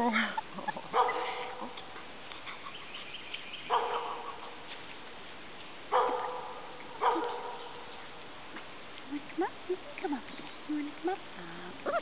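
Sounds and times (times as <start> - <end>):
puppy barking: 0.9 - 1.8, 3.7 - 4.5, 5.9 - 7.9.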